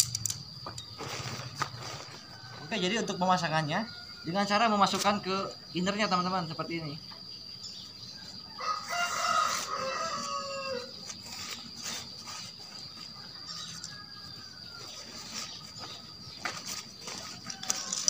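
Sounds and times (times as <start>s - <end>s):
tent poles and fabric rustling: 0.0s - 2.7s, 8.8s - 18.0s
rooster crowing: 1.9s - 4.7s, 8.2s - 11.1s, 12.9s - 16.3s, 17.0s - 18.0s.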